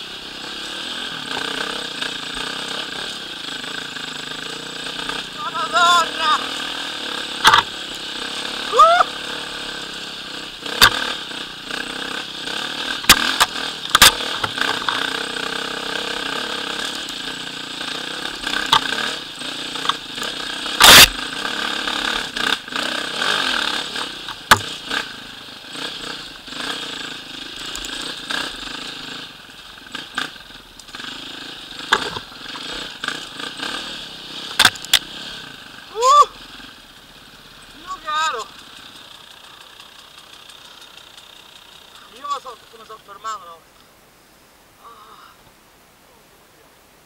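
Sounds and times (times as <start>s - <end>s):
motorcycle engine running: 0.0s - 43.6s
bike knocks and clatter: 24.3s - 24.8s.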